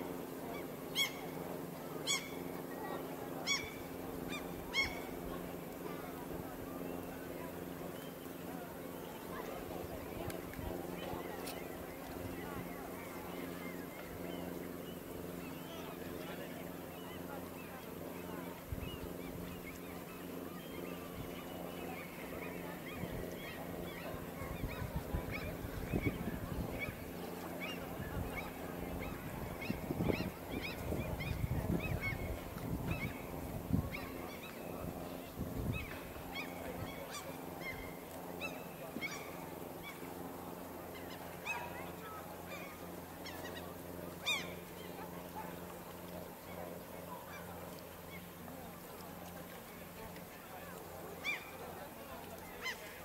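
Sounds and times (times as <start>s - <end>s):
steady low hum: 0.0s - 53.0s
waterbirds calling: 0.0s - 53.0s
wind buffeting microphone: 24.4s - 27.0s, 27.9s - 34.0s.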